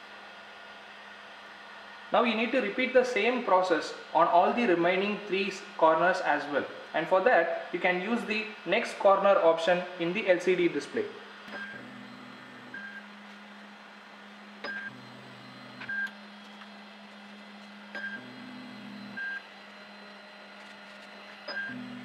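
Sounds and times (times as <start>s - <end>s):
stepper motors whirring: 10.5s - 22.0s
printer beeping: 11.4s - 13.2s, 14.5s - 22.0s.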